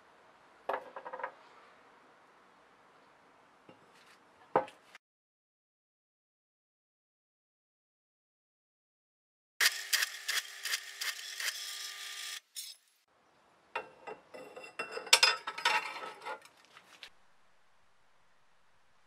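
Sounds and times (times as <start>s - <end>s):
metallic clatter and scraping: 14.4s - 17.0s.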